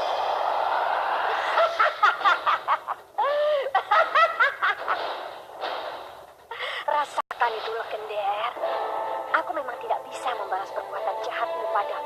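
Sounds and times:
person laughing: 1.3 - 5.0.

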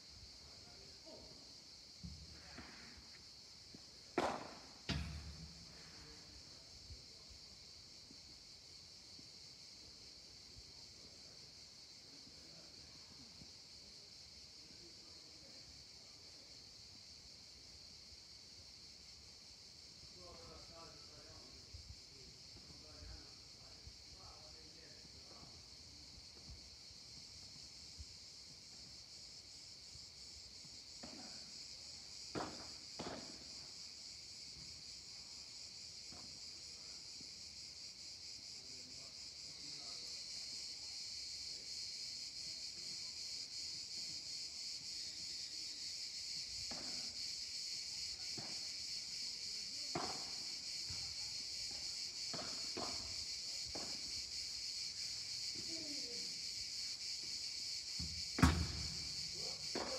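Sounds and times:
cicadas chorus: 0.0 - 59.9
rackets hitting a ball: 4.2 - 5.4.

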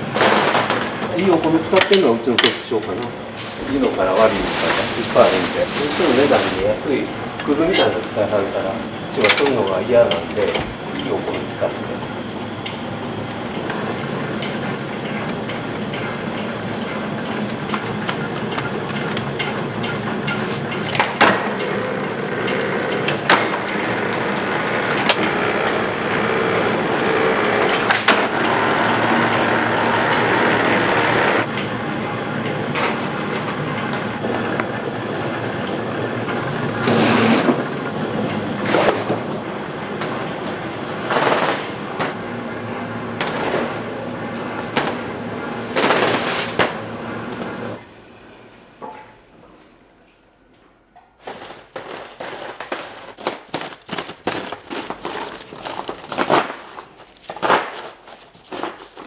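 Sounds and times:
machinery rattling clatter: 0.0 - 47.8, 51.2 - 59.0.

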